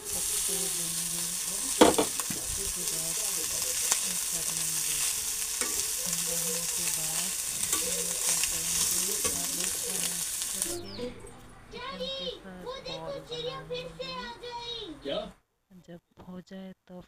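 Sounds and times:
frying sizzle: 0:00.0 - 0:11.1
metal spatula scraping pan: 0:04.5 - 0:10.5.

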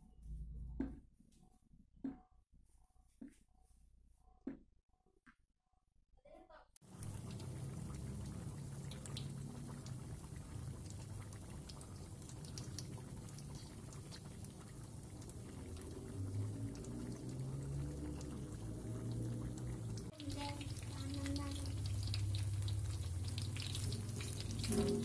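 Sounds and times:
food sizzling in hot oil: 0:06.8 - 0:25.0
low rumble: 0:15.0 - 0:20.1.

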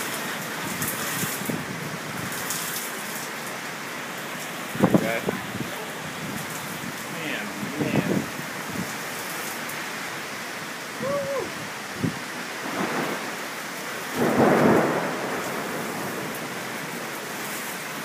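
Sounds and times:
heavy rain pouring: 0:00.0 - 0:18.0
thunder rumbling: 0:11.0 - 0:13.4, 0:14.1 - 0:17.5.

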